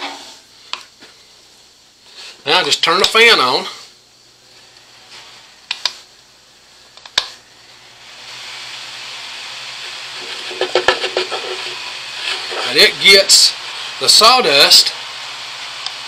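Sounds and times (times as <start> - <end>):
sharp clicks: 5.7 - 6.0.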